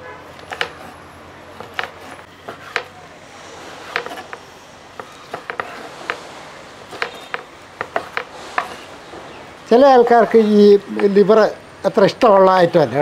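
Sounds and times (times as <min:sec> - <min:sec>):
knife tapping wooden board: 0:00.5 - 0:00.8, 0:01.6 - 0:02.9.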